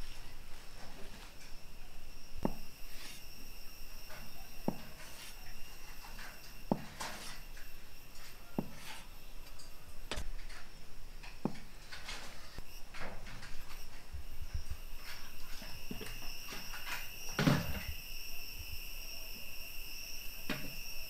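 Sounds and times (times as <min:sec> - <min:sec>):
soft scraping: 0:02.4 - 0:03.5, 0:04.1 - 0:10.8, 0:11.5 - 0:17.0.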